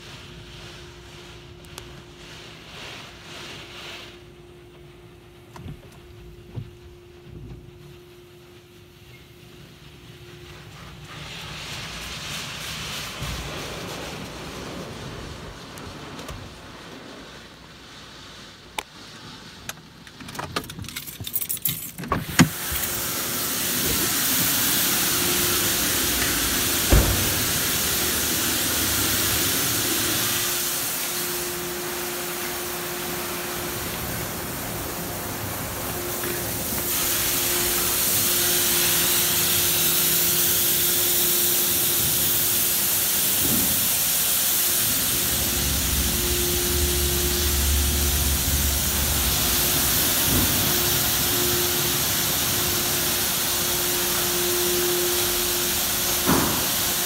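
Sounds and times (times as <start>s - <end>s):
high-pressure water spray: 8.8s - 18.4s, 22.3s - 57.0s
pump hum: 22.3s - 57.0s
sharp knock: 26.9s - 27.5s.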